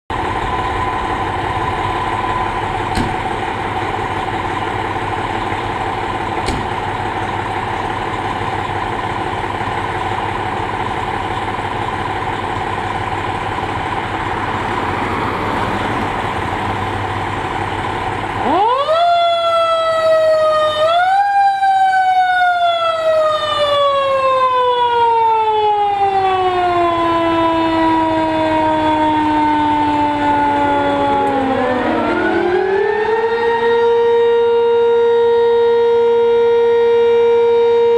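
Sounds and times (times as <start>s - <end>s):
fire engine idling: 0.1s - 37.9s
siren winding up and falling: 18.4s - 37.9s.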